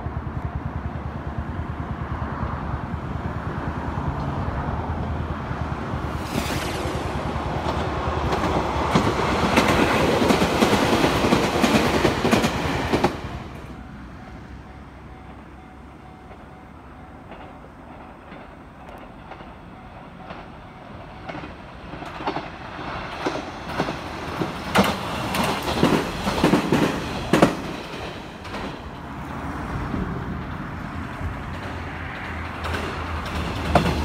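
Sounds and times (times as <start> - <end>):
train wheels clattering over rail joints: 6.0 - 13.8, 17.2 - 29.6, 30.4 - 34.0.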